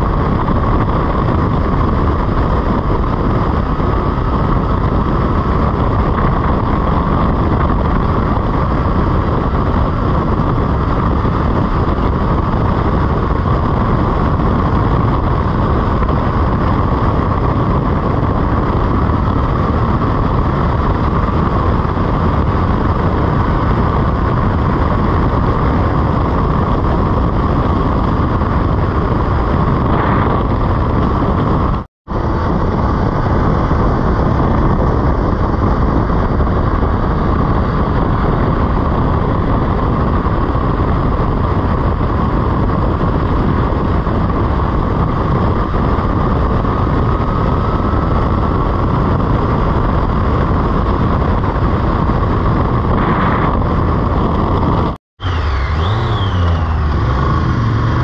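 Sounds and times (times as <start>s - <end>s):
motorcycle engine running: 0.0s - 58.0s
wind rush: 0.0s - 58.0s.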